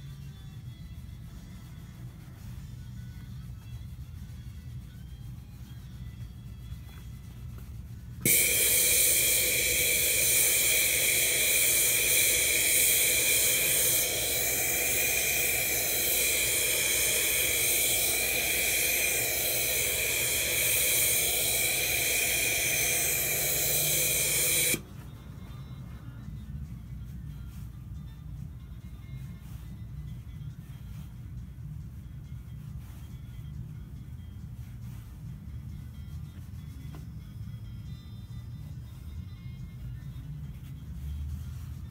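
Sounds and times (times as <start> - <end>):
steamer hissing: 8.2 - 24.8.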